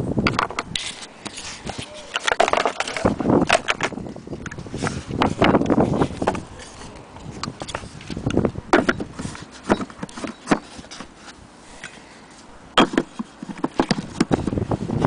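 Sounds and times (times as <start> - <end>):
wooden box knocking and clicking: 2.1 - 4.0, 8.7 - 9.1, 12.8 - 14.3.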